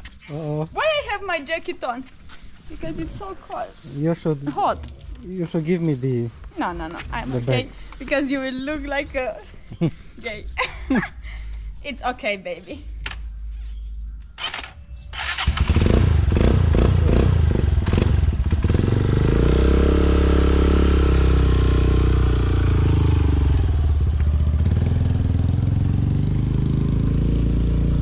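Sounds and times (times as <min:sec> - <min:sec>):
dirt bike engine revving: 0:14.4 - 0:28.0.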